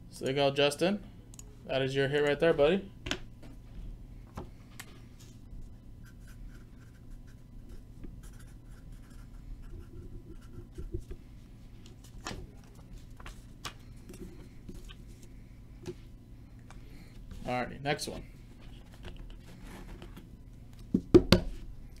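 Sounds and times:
marker pen scratching on paper: 6.0s - 11.2s.

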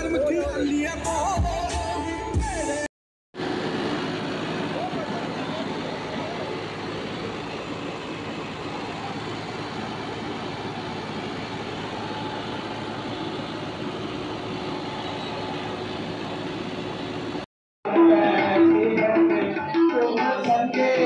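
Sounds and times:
tractors running: 3.4s - 17.4s.

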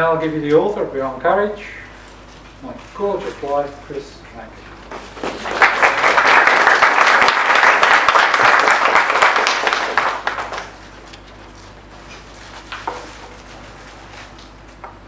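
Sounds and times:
audience applauding: 5.2s - 10.8s.

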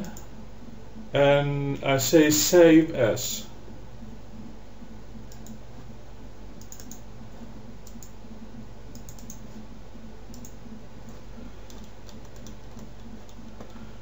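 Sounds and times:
computer mouse clicks: 0.0s - 0.3s, 5.3s - 5.6s, 6.6s - 7.1s, 7.8s - 8.2s, 8.9s - 9.6s, 10.3s - 13.8s
steady low hum: 0.0s - 14.0s.

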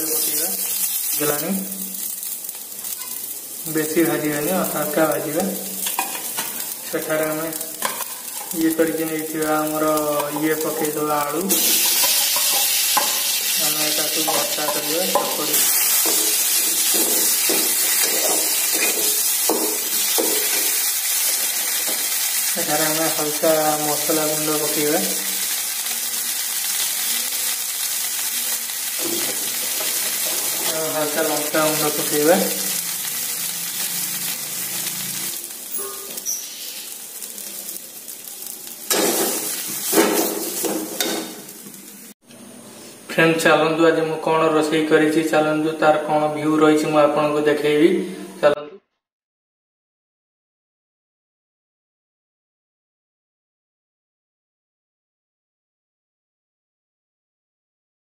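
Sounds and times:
food sizzling in oil: 0.0s - 42.2s
spatula scraping pan: 11.5s - 13.5s, 14.1s - 22.0s.

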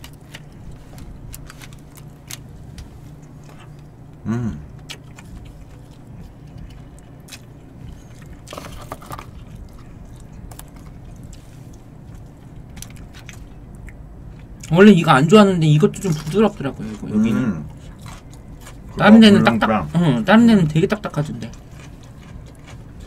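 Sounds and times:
soft chewing: 0.0s - 14.7s, 15.8s - 23.0s
person humming briefly: 4.2s - 4.7s.

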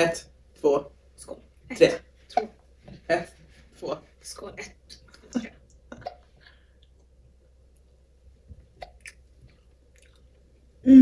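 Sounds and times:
mouth clicks and smacks: 4.9s - 7.1s, 8.5s - 10.5s
faint chewing: 8.8s - 10.6s.

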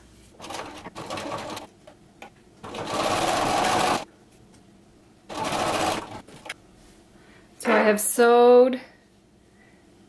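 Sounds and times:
sewing machine stitching: 0.4s - 1.7s, 2.6s - 4.0s, 5.3s - 6.5s.

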